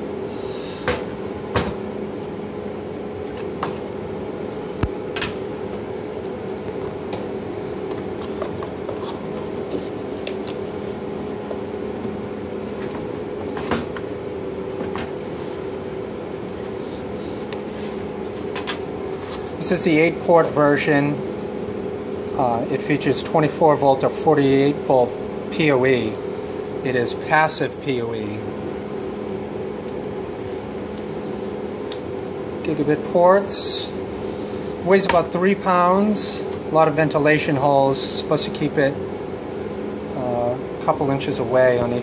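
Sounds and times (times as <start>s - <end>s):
steady background hum: 0.0s - 42.0s.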